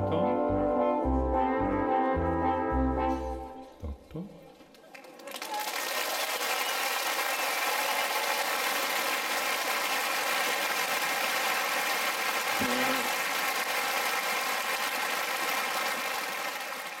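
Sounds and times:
audience applauding: 4.8 - 17.0
person calling out: 12.6 - 13.1.

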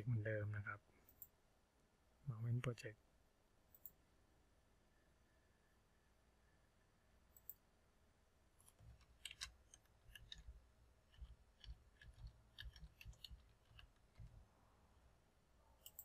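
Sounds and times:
faint keyboard typing: 3.7 - 4.0, 7.3 - 7.6, 8.6 - 14.6, 15.8 - 16.0
mouse click: 7.3 - 7.6, 15.8 - 16.0.

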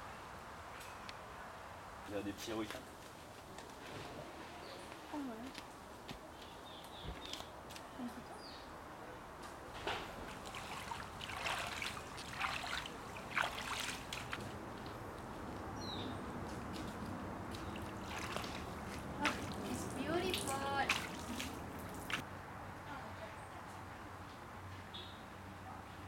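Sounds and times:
hand splashing in shallow water: 10.0 - 14.6, 16.7 - 22.2.

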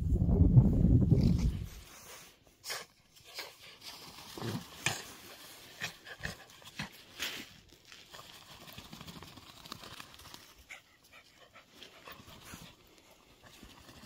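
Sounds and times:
dog panting faintly: 10.6 - 13.5.

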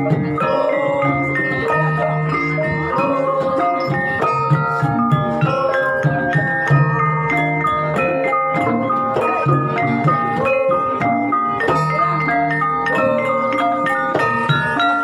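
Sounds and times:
drum strokes: 0.0 - 15.0
mallet-struck keyed instruments melody: 0.0 - 15.0.

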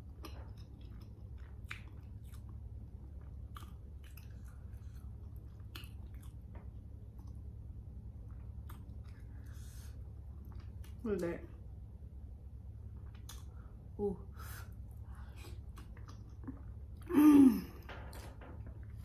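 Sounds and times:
steady low hum: 0.0 - 19.0
wet chewing mouth sounds: 0.1 - 7.5, 13.0 - 13.7, 15.3 - 17.1.

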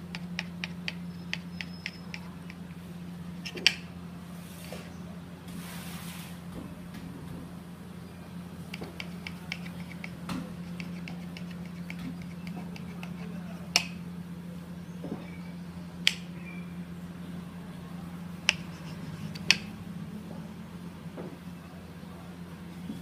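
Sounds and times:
knife cutting bread: 8.7 - 14.0, 18.5 - 19.7.

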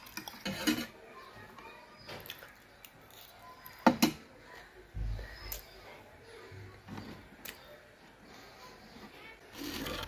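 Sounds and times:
chewing: 2.2 - 3.8.

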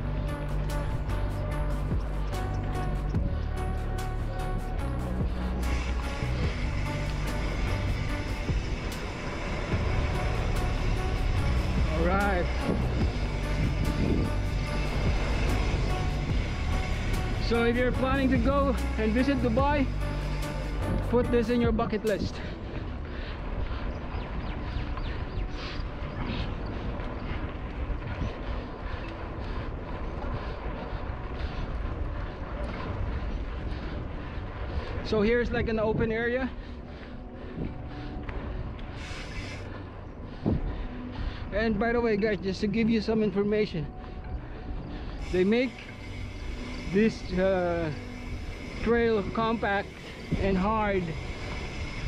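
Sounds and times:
music with steady beat and bass: 0.0 - 9.1, 9.7 - 22.3
wind on microphone: 0.0 - 42.5, 43.3 - 52.0
bike tyre noise on sand: 0.0 - 52.0.

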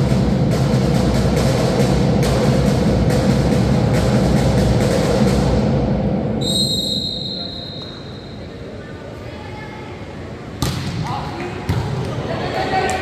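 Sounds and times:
drums beating: 0.0 - 6.4
arena crowd din: 7.0 - 13.0.

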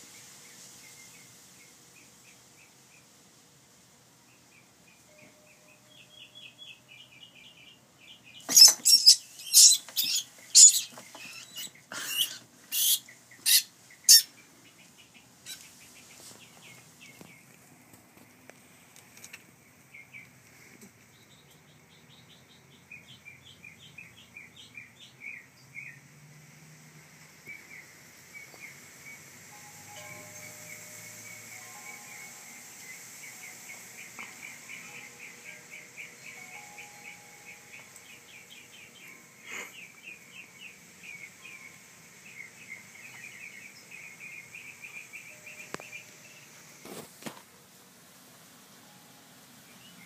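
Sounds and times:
small high chirps: 8.4 - 14.3, 28.4 - 41.8.

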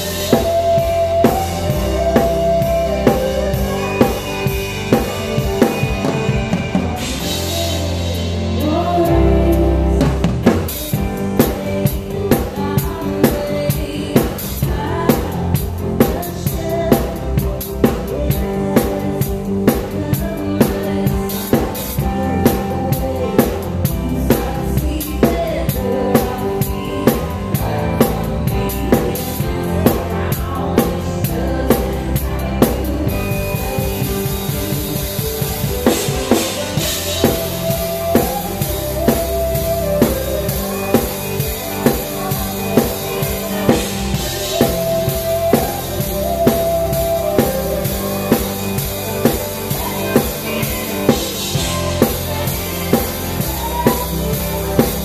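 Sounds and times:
drum kit groove: 0.0 - 55.0
live band music: 0.0 - 55.0.

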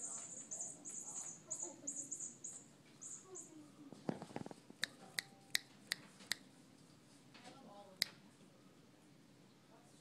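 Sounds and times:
faint high chirps: 0.0 - 3.8.

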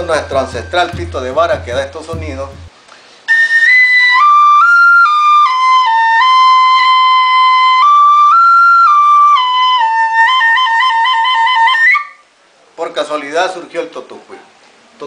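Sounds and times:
cane flute melody: 0.0 - 2.7, 3.3 - 12.3.

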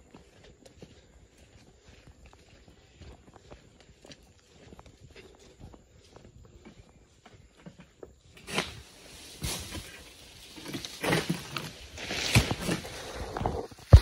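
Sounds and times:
sickle rustling and scraping fronds: 8.3 - 14.0.

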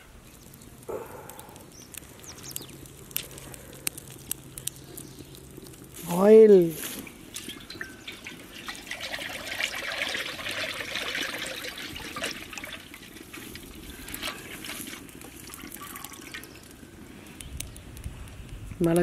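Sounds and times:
cooking oil pouring into a pan: 7.3 - 13.7.

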